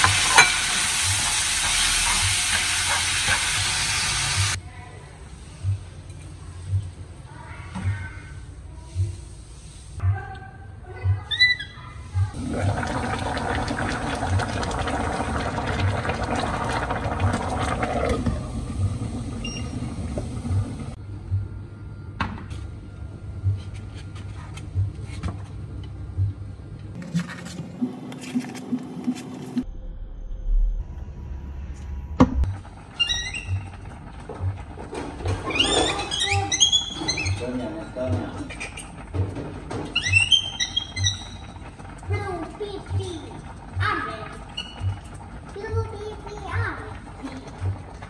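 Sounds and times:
water running: 12.3 - 21.0, 32.5 - 48.0.

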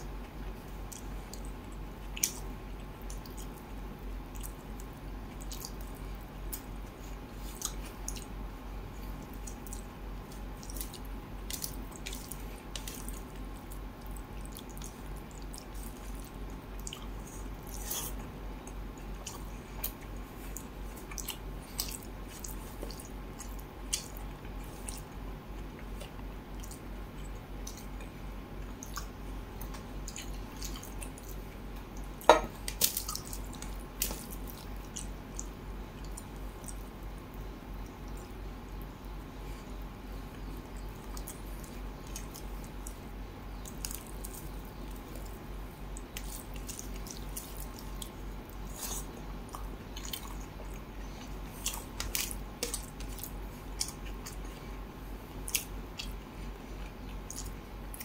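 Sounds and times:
faint electrical hum: 0.0 - 58.0
mouth chewing: 55.4 - 58.0.

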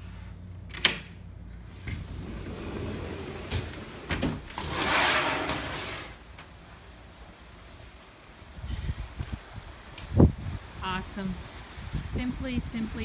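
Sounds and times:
sliding door rolling on track: 1.7 - 6.2.

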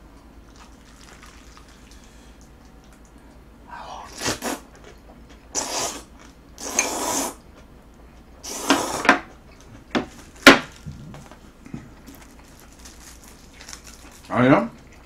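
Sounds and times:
noodles slurped: 5.5 - 7.4.

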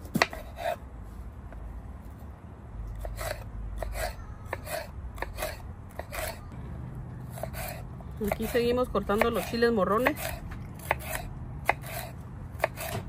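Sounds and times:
knife cutting on wooden board: 0.1 - 0.8, 3.0 - 6.4, 7.3 - 8.6, 9.2 - 13.0.

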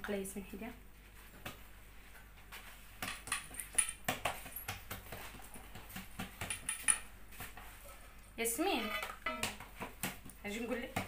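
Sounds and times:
hands slapping dough: 1.3 - 1.7, 2.5 - 7.8, 9.4 - 11.0.

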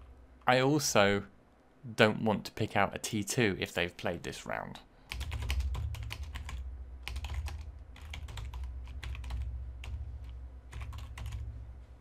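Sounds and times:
low hum: 0.0 - 1.9, 4.8 - 12.0
typing on computer keyboard: 5.1 - 10.0, 10.7 - 11.4.

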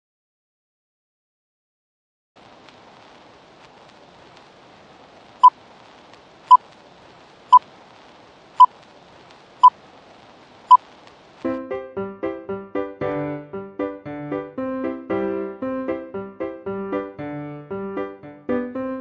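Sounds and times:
film hiss with crackles: 2.4 - 11.6
piano music: 11.5 - 19.0.

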